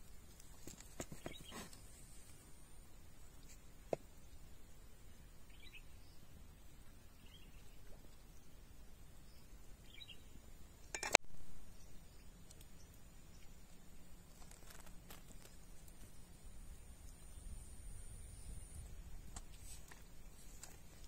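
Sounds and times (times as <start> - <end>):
knife clinking on wooden board: 11.0 - 11.2.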